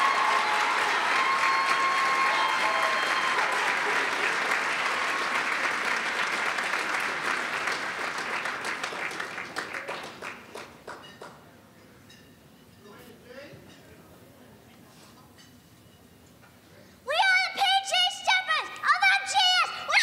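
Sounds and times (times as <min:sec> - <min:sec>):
voices cheering: 0:00.0 - 0:05.7
crowd applauding: 0:00.0 - 0:11.4.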